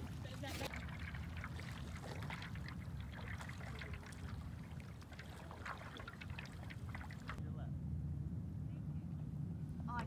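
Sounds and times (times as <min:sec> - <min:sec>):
paddles dipping through water: 0:00.0 - 0:07.4
water dripping off paddles: 0:00.0 - 0:07.4
low steady rumble: 0:00.0 - 0:10.0.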